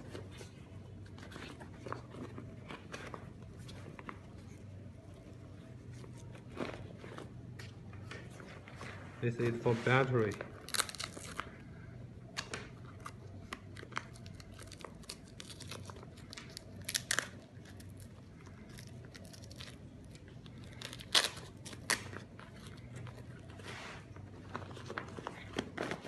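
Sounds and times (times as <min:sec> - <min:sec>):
faint low hum: 0:00.0 - 0:26.0
foil pouch crinkling: 0:10.1 - 0:11.6, 0:12.9 - 0:23.6.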